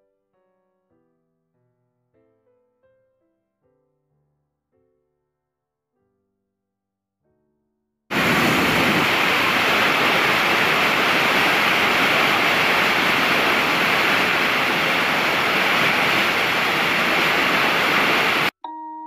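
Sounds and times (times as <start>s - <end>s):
waterfall rushing: 8.1s - 18.5s
soft chiming music notes: 18.6s - 19.0s.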